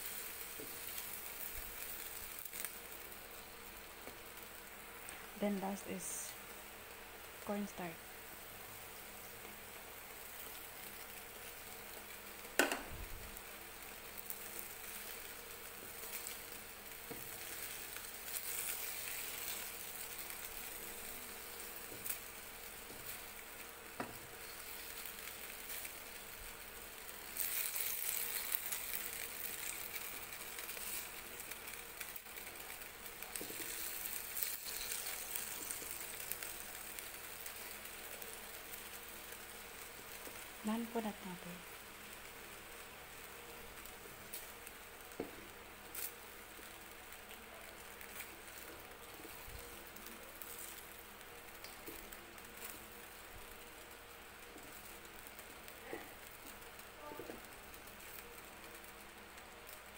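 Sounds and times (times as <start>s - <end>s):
food sizzling in a wok: 0.0s - 59.9s
spatula stirring and scraping: 14.2s - 38.8s.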